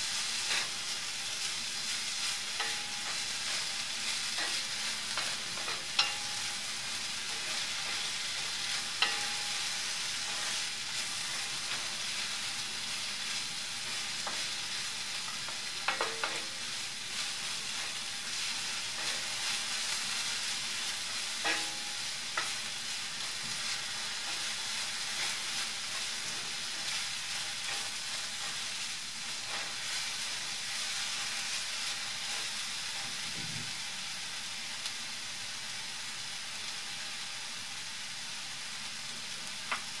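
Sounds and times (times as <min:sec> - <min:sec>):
onions sizzling in a pan: 0:00.0 - 0:40.0
spatula tapping pan: 0:02.5 - 0:06.6, 0:07.3 - 0:10.4, 0:15.3 - 0:16.6, 0:21.3 - 0:22.6.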